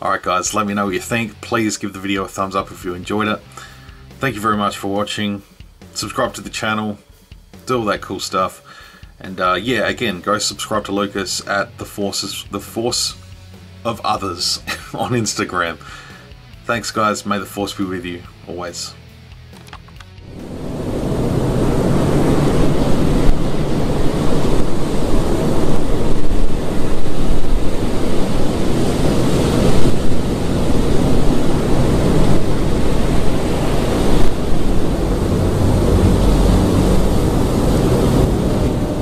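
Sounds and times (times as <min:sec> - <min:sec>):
low rumble: 0:20.2 - 0:39.0
rushing wind-like noise: 0:20.2 - 0:39.0.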